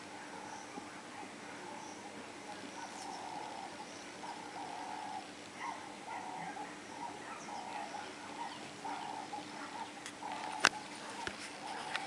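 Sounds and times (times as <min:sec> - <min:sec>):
short animal calls: 0:02.5 - 0:12.0.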